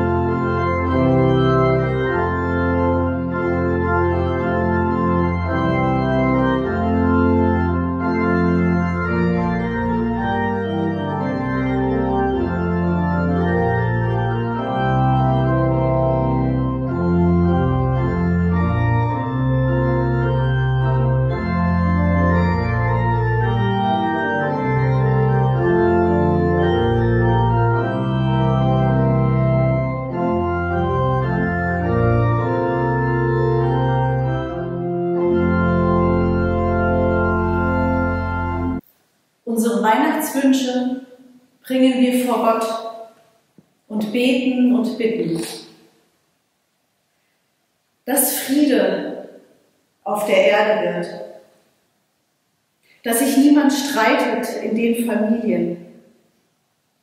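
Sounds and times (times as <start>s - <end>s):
church organ playing chords: 0.0s - 38.8s.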